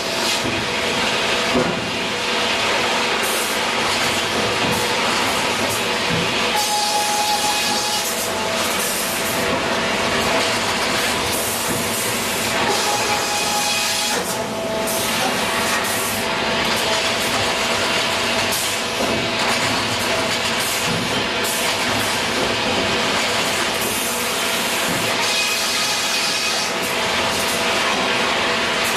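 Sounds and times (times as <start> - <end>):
saw cutting log: 3.2 - 17.7, 23.8 - 27.6.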